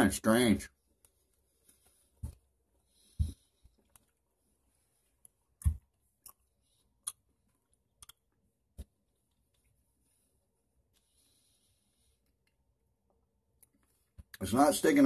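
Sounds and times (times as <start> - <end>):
mouth clicks and smacks chewing: 5.2 - 8.4.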